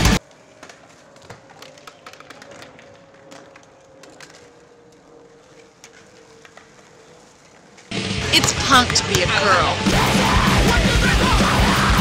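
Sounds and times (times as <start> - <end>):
skateboard clicks and clacks: 0.1 - 9.1
skateboards rolling on asphalt: 0.1 - 12.0.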